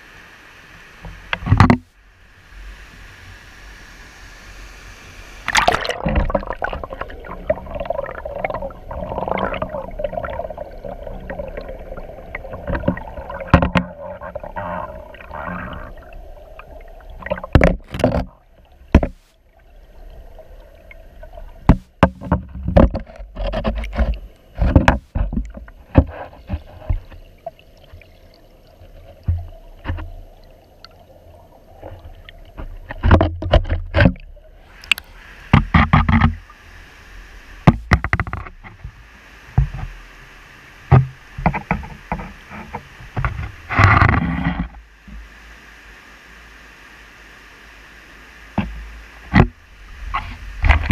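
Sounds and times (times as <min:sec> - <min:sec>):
muffled underwater rush: 0:02.1 - 0:50.9
sharp knocks and splashes: 0:05.4 - 0:16.0, 0:16.6 - 0:19.2, 0:21.6 - 0:28.1, 0:31.9 - 0:34.3, 0:40.9 - 0:44.8.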